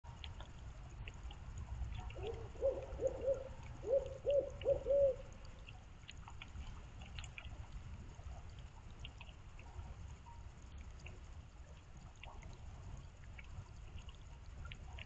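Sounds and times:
faint trickle of water: 0:00.0 - 0:15.0
water drips: 0:00.0 - 0:15.0
owl hooting: 0:02.2 - 0:05.3.

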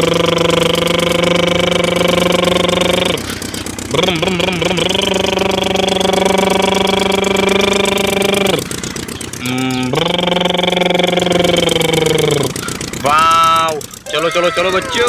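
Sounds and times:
buzzy motorbike engine hum: 0:00.0 - 0:15.0.

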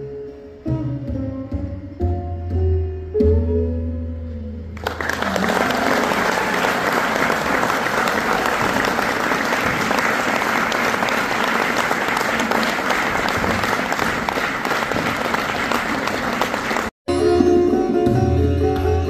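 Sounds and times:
audience applause: 0:04.8 - 0:17.0.

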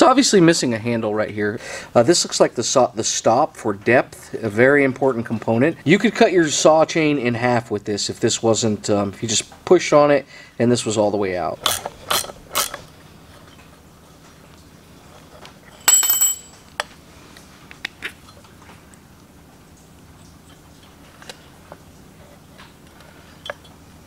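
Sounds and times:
metal tools clinking and tapping: 0:15.6 - 0:16.9
ringing metallic clatter: 0:15.7 - 0:16.6.

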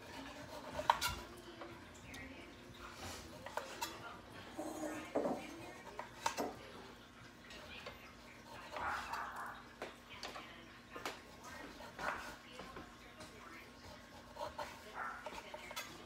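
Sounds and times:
knife scrape: 0:00.0 - 0:01.3, 0:03.0 - 0:06.5.

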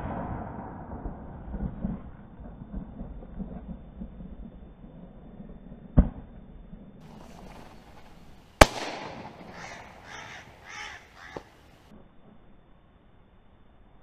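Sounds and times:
shotgun shots: 0:08.6 - 0:10.4
crows cawing: 0:09.4 - 0:11.6.

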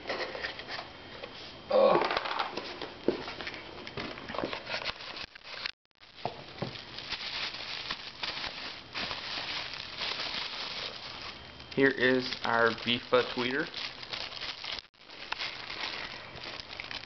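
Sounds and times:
plastic wrapping crinkling: 0:04.6 - 0:17.0.

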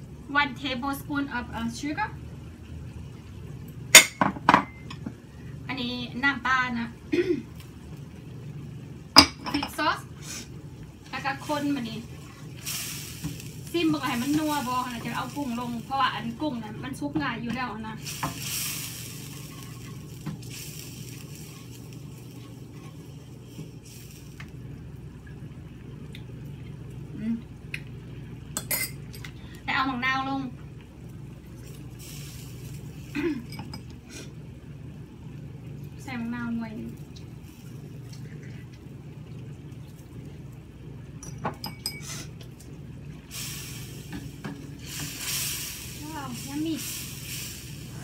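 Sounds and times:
steady low hum: 0:00.0 - 0:48.0
sauce sizzling in a frying pan: 0:04.9 - 0:25.6, 0:29.9 - 0:34.5, 0:35.4 - 0:38.1, 0:43.1 - 0:48.0.

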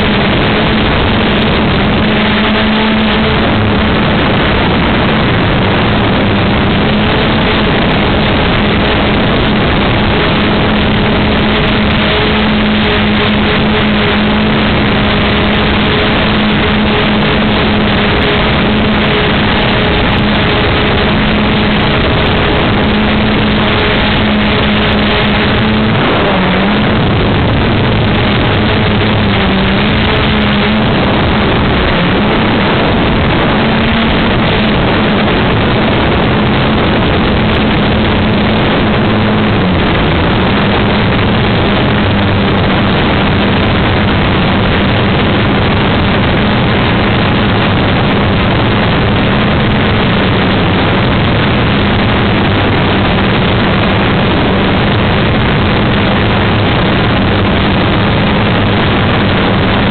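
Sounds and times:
model aircraft motor drone: 0:00.0 - 0:04.0, 0:06.0 - 0:36.0
rushing wind noise: 0:00.0 - 0:59.9.

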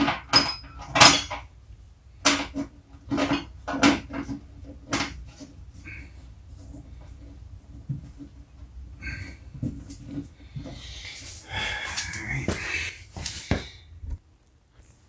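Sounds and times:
metal clanks and clatter: 0:00.0 - 0:01.5, 0:02.2 - 0:05.6.

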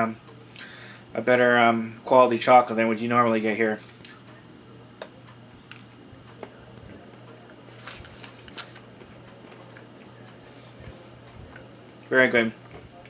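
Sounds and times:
paper wrapper crackling: 0:07.7 - 0:08.9.

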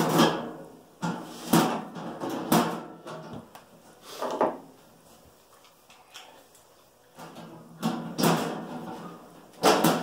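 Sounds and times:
sheet metal panels clanking: 0:07.2 - 0:10.0.

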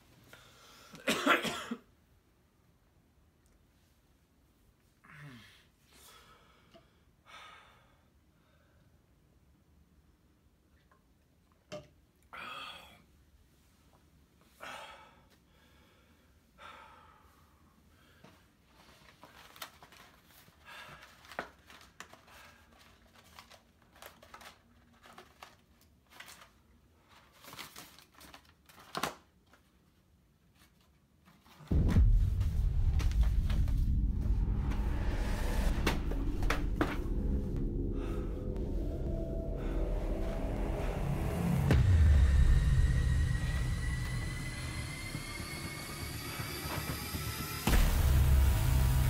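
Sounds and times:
loud bass-heavy music: 0:31.7 - 0:49.0.

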